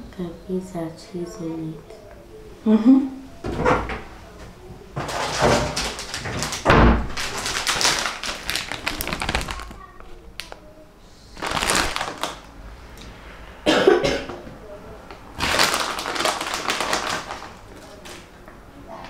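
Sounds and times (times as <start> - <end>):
rustling: 5.0 - 10.5, 11.4 - 12.5.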